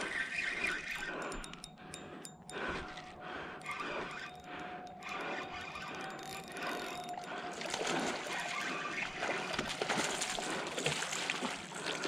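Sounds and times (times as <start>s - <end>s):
fish splashing in water: 7.5s - 12.0s.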